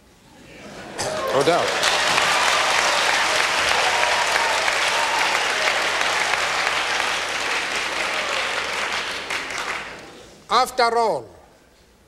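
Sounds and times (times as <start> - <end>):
audience applauding: 1.0 - 10.4.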